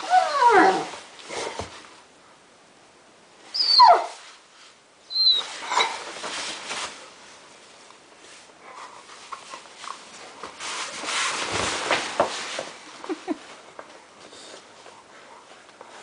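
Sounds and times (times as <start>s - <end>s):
dog yelping whines: 0.0s - 1.0s, 3.5s - 4.2s, 5.1s - 6.0s
rustling: 3.9s - 16.0s.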